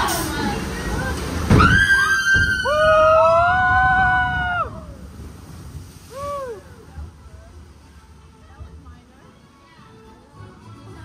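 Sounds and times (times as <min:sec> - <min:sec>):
people screaming together: 0:01.6 - 0:04.9.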